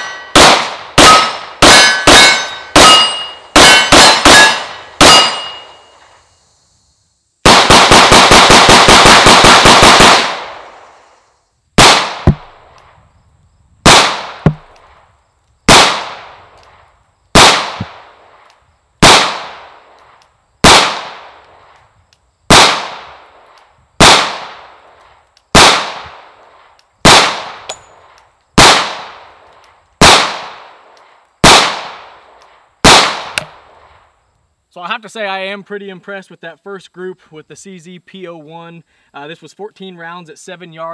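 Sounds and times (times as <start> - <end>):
pistol shots: 0.0 - 5.8, 7.4 - 10.7, 11.8 - 12.6, 13.8 - 14.7, 15.7 - 16.4, 17.4 - 18.0, 19.0 - 19.7, 20.6 - 21.4, 22.5 - 23.2, 24.0 - 24.8, 25.5 - 26.3, 27.0 - 27.8, 28.6 - 29.3, 30.0 - 30.7, 31.4 - 32.2, 32.8 - 33.6.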